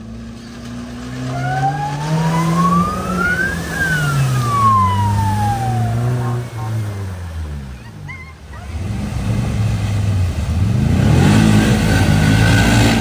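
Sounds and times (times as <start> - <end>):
engine pulling under load: 0.0 - 8.1
water rushing and spraying: 0.8 - 13.0
rising and falling whine: 1.1 - 7.2.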